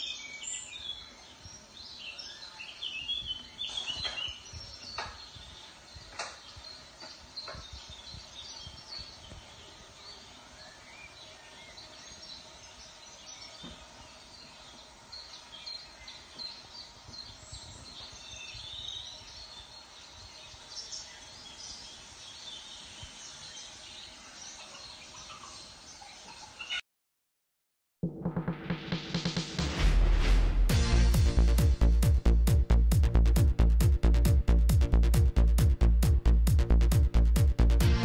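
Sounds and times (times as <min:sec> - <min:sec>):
faint birds chirping: 0:00.0 - 0:26.8.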